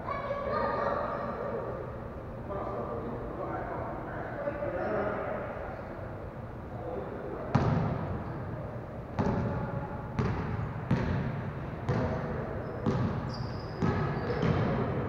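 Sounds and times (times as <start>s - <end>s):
basketball bouncing on hardwood floor: 11.9s - 12.1s.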